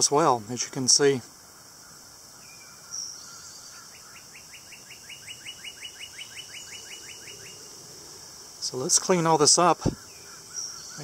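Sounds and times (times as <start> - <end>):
bird chirp: 0.0 - 11.0
high insect drone: 0.0 - 11.0
bird singing rising notes: 2.4 - 8.8.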